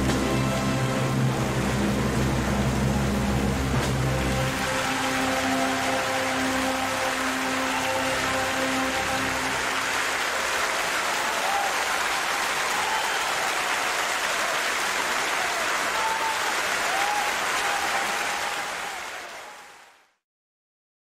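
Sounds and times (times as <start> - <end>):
audience applauding: 0.0 - 20.2
faint cheers: 4.4 - 20.0.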